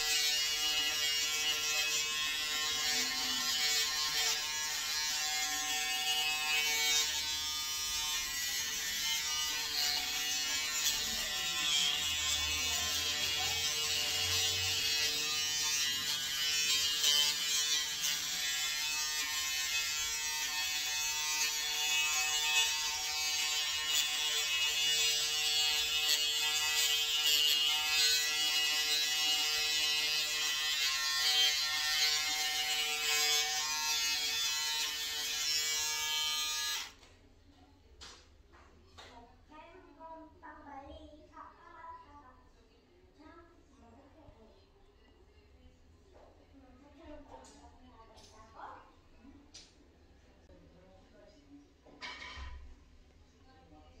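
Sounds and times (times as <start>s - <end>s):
electric shaver humming: 0.0s - 37.0s.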